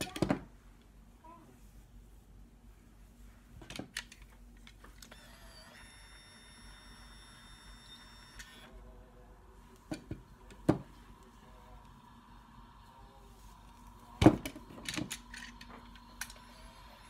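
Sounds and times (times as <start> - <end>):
hair curler motor whining: 5.0 - 8.8, 11.8 - 17.0.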